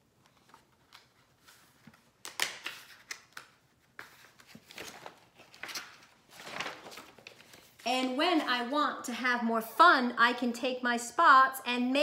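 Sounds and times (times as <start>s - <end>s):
paper pages rustling: 0.2s - 8.2s
paper crackle: 0.4s - 7.9s.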